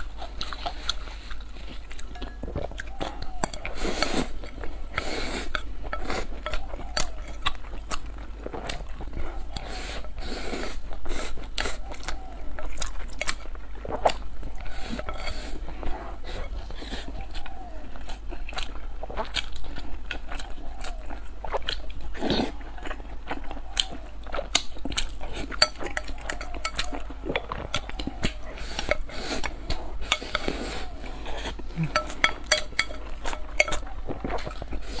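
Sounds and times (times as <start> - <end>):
chewing and biting: 0.0 - 35.0
chopsticks clicking on ceramic bowl: 25.6 - 29.5, 30.1 - 30.6, 31.8 - 34.6.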